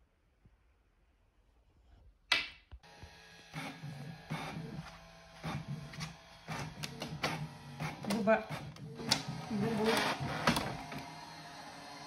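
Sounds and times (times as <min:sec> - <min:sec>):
inkjet printer running: 0:02.9 - 0:12.0.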